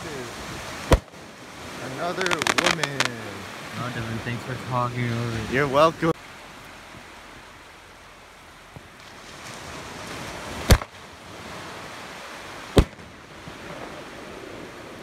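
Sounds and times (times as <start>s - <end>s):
steady background hiss: 0.0s - 15.0s
fireworks bangs: 0.5s - 3.5s, 10.6s - 11.0s, 12.7s - 14.0s.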